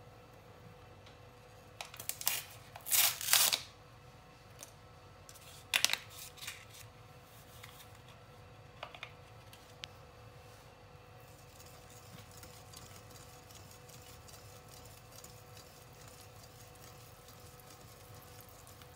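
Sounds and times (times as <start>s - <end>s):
faint steady hum: 0.0s - 18.9s
paper sachet crinkling and tearing: 2.0s - 3.7s.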